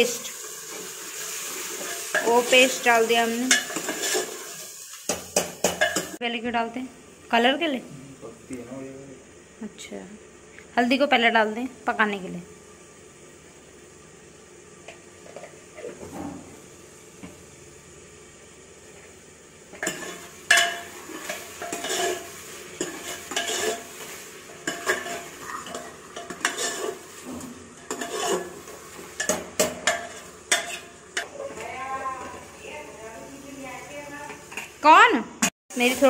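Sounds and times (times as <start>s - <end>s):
faint sizzle: 0.0s - 36.0s
ladle scraping a metal pot: 3.5s - 4.6s, 19.8s - 30.9s.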